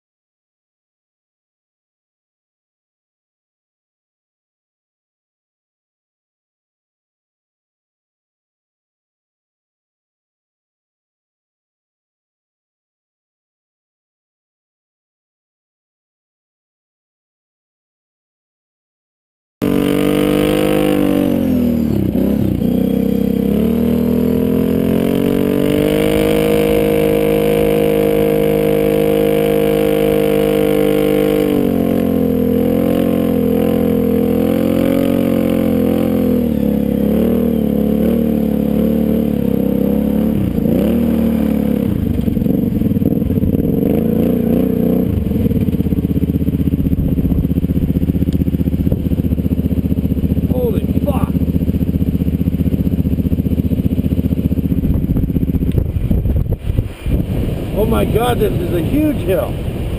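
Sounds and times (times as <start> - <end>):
atv engine revving: 19.6 - 59.9.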